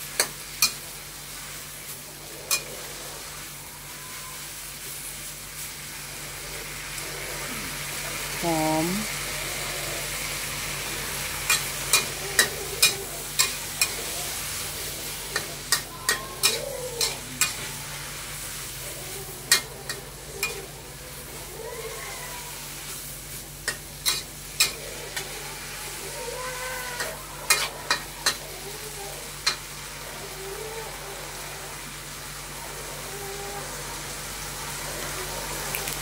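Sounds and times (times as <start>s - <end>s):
vegetables sizzling in a wok: 0.0s - 36.0s.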